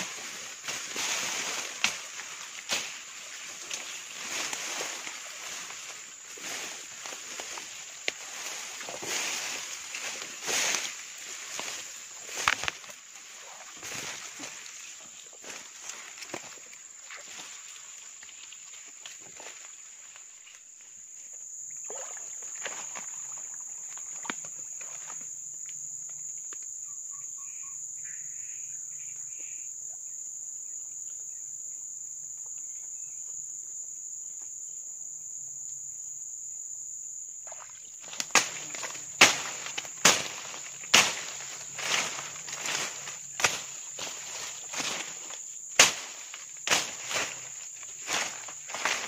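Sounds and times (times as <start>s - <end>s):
footsteps rustling through leaves: 0.0s - 16.6s, 38.2s - 49.0s
insects droning: 0.0s - 49.0s.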